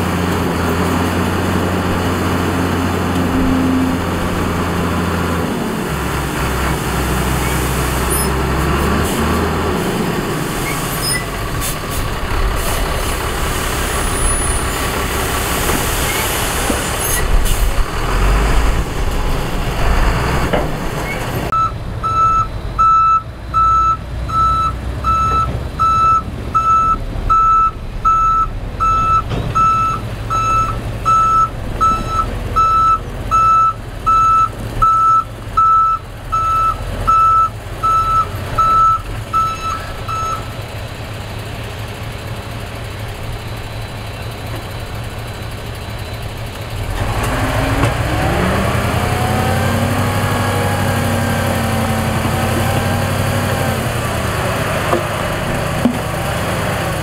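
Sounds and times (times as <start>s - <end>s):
heavy diesel machinery rumbling: 0.0s - 57.0s
reversing alarm beeping: 21.5s - 40.5s.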